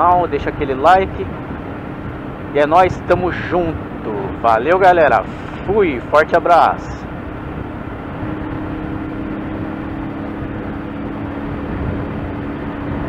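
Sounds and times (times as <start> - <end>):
rushing wind noise: 0.0 - 13.0
motorcycle engine running: 7.0 - 13.0.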